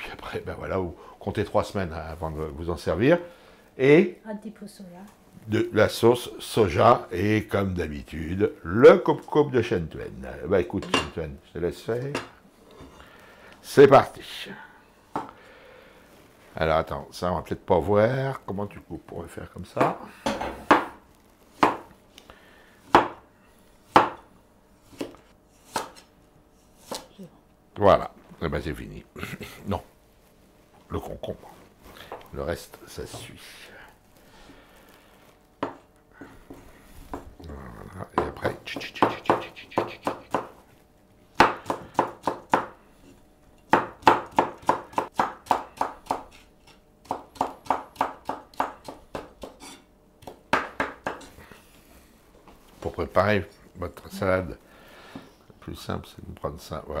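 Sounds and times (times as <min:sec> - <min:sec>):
cleaver chopping on wooden board: 0:22.9 - 0:23.2, 0:23.9 - 0:24.2, 0:24.9 - 0:26.0, 0:38.2 - 0:40.5, 0:41.4 - 0:42.8, 0:43.7 - 0:46.4, 0:47.0 - 0:49.6.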